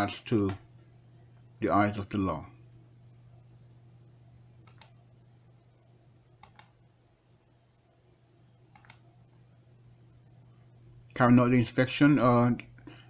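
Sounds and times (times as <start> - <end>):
faint low hum: 0.0 - 13.0
computer mouse double clicks: 8.7 - 9.0.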